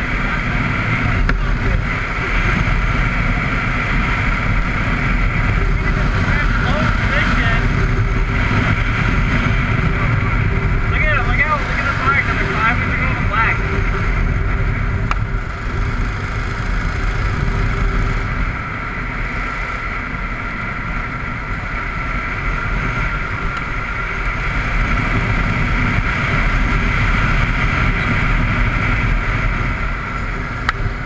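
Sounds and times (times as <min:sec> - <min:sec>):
go-kart engine running: 0:00.0 - 0:31.0
wind rushing over microphone: 0:00.0 - 0:31.0.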